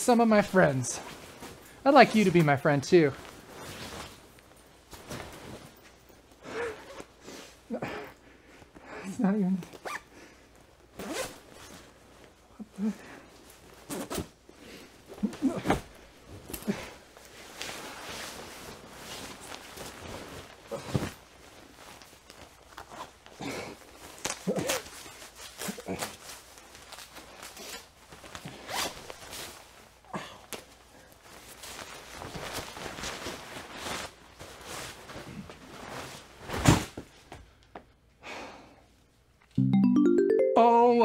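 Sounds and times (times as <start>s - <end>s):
fabric rustle: 0.4s - 7.7s, 9.6s - 37.6s
jacket zipper zipping: 11.0s - 11.4s.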